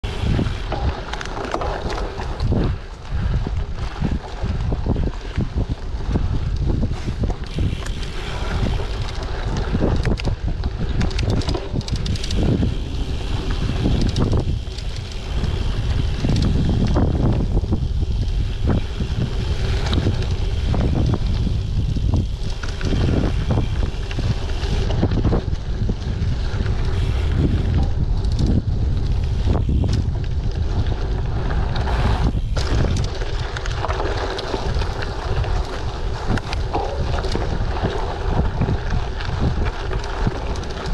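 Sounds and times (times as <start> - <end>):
bike knocking and rattling: 0.0 - 40.9
bike tyres rolling on dirt: 0.0 - 40.9
wind buffeting microphone: 0.0 - 40.9.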